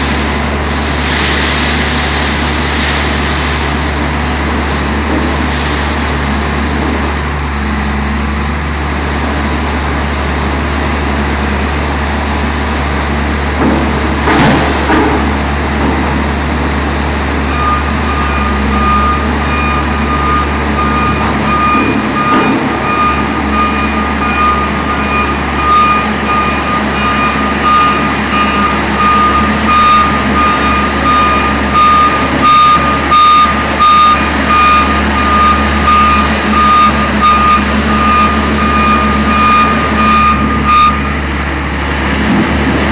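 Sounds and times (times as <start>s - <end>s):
load dropping into truck: 0.0s - 7.0s, 13.6s - 16.3s
diesel engine humming: 0.0s - 42.9s
back-up alarm beeping: 17.5s - 41.2s.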